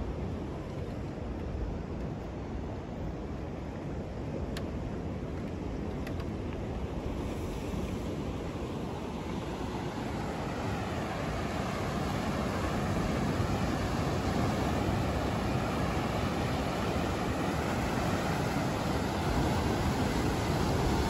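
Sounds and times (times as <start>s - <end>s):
wind rumbling on microphone: 0.0s - 21.0s
surf breaking on rocks: 11.8s - 21.0s.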